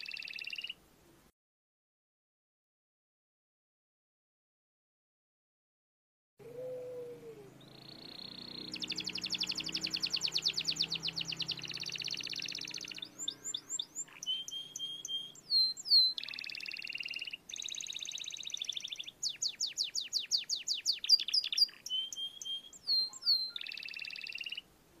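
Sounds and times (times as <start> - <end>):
canary singing: 0.0 - 0.8, 6.4 - 24.7.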